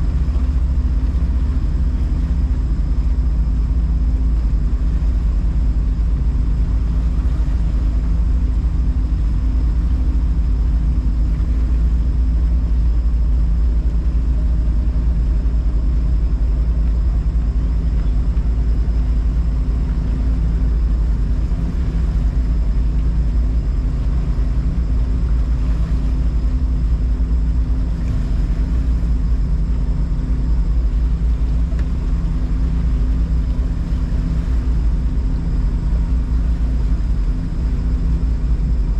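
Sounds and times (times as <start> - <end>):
motorboat engine running: 0.0 - 38.9.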